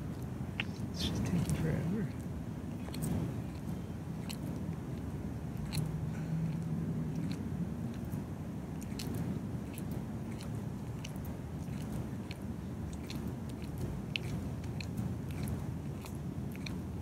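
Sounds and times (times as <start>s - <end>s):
cat chewing with crunches: 0.0s - 17.0s.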